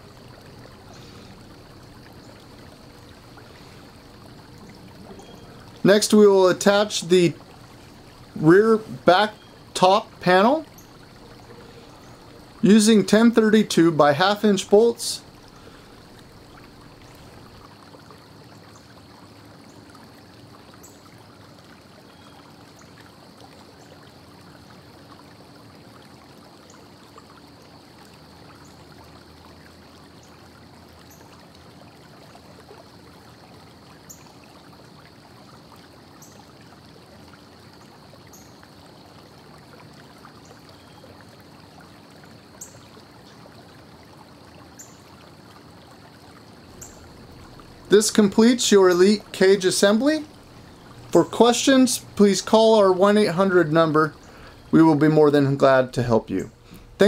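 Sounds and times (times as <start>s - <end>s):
low hum: 0.0s - 14.0s
room tone hiss: 0.0s - 17.8s, 44.5s - 57.0s.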